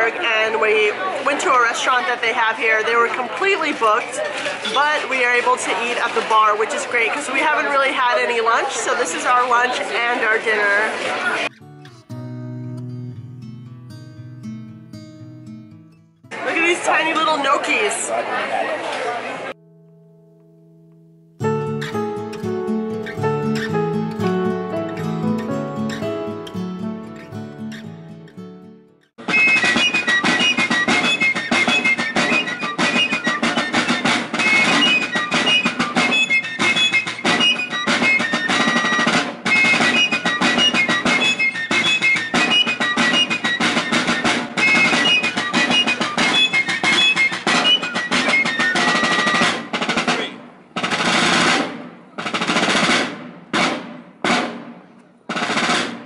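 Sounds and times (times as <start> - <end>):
fifes playing a melody: 11.4 - 16.8, 19.6 - 49.9
rapid snare drumming: 29.2 - 56.0.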